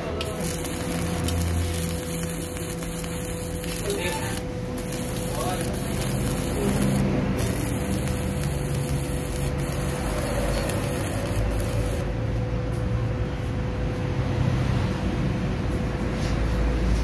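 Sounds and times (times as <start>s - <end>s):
welding arc: 0.0s - 12.2s
steady low hum: 0.0s - 14.2s.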